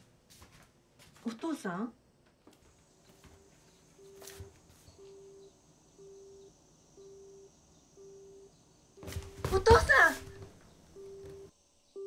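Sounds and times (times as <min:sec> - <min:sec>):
telephone busy tone beeps: 0:04.0 - 0:12.0.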